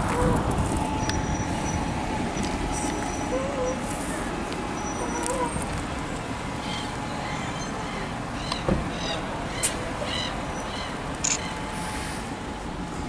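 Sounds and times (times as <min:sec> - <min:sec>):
bus engines and traffic rumble: 0:00.0 - 0:13.0
sharp clicks: 0:11.2 - 0:11.4.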